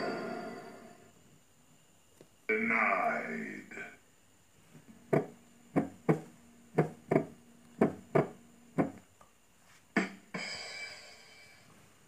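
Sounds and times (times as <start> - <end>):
person making percussive pops: 5.1 - 9.0.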